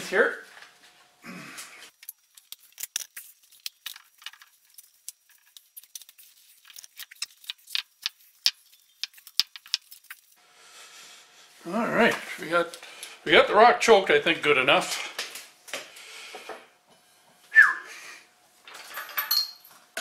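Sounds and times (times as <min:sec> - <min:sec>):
small clicks and scrapes: 0:01.9 - 0:10.4.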